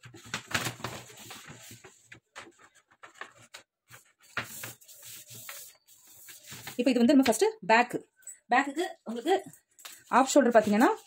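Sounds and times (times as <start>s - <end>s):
paper rustling and scraping: 0.0s - 7.4s, 9.9s - 11.0s.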